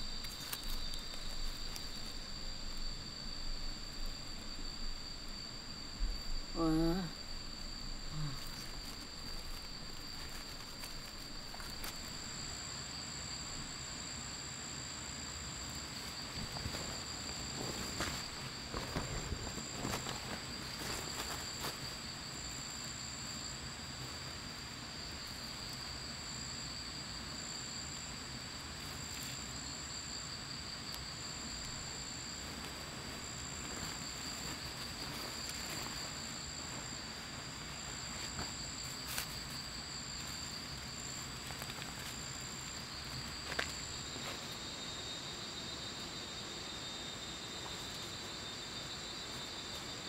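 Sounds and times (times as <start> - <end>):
continuous insect trill: 0.0 - 50.0
high broken insect trill: 0.0 - 50.0.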